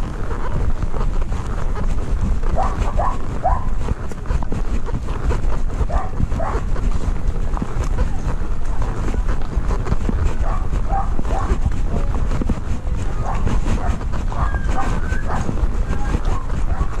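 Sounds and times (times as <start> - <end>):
steady low rumble: 0.0 - 17.0
animal yelping calls: 1.5 - 3.8, 5.0 - 7.0, 13.1 - 17.0.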